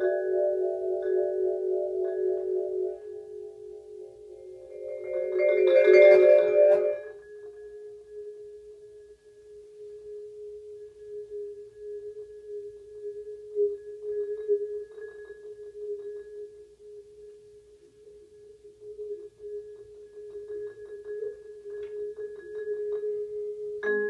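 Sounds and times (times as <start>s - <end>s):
light vibraphone strokes: 1.1s - 7.8s
vibraphone note ringing: 4.6s - 7.2s.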